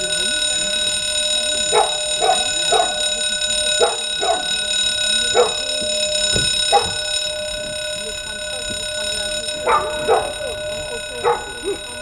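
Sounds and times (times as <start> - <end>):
electronic alarm tone: 1.6 - 8.7
dog barking: 1.7 - 3.2, 3.8 - 4.6, 5.3 - 5.7, 6.4 - 7.0, 9.6 - 10.6, 11.2 - 11.8.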